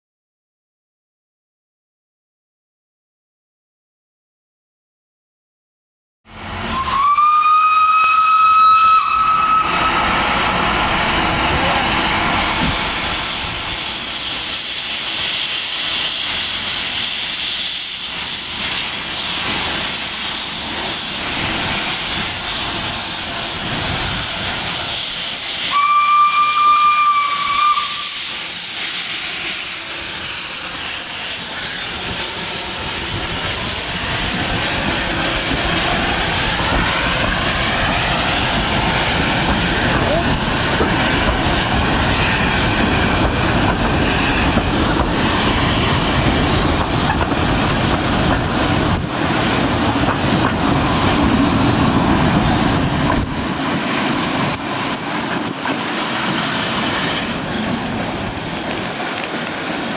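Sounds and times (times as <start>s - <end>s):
steam hissing: 6.6s - 59.9s
steam whistle: 6.7s - 10.2s, 25.4s - 29.0s.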